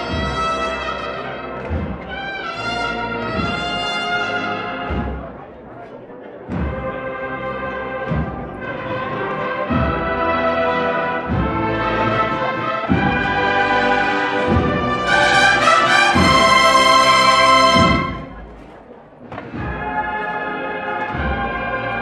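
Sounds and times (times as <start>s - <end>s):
cornet chords: 6.4s - 22.0s
bass drum beat: 8.0s - 18.7s.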